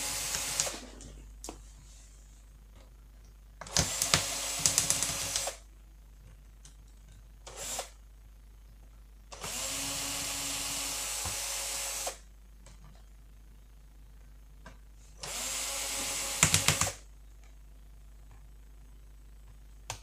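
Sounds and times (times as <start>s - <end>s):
cordless drill whirring: 0.0s - 0.9s, 3.6s - 5.6s, 7.5s - 8.0s, 9.4s - 12.2s, 15.2s - 17.0s.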